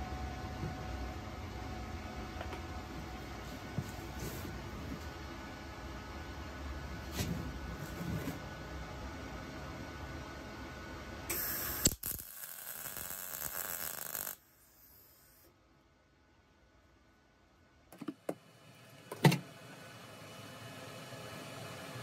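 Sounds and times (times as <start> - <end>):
welder crackling hiss: 11.3 - 15.5.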